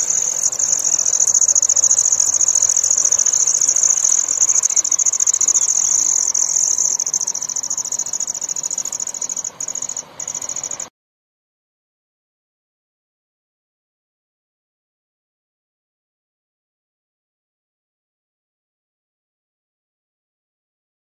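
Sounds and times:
crickets trilling: 0.0 - 10.9.

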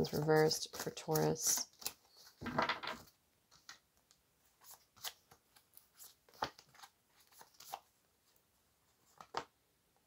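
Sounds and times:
cards shuffling: 0.0 - 3.8, 4.6 - 7.8.

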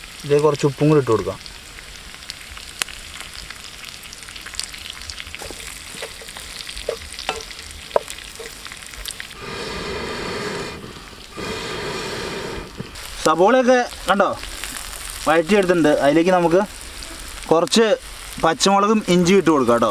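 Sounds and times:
onions sizzling in frying pan: 0.0 - 19.9
oil crackling pops: 1.3 - 9.4, 12.4 - 18.6
stirring with wooden spatula: 5.3 - 9.2.

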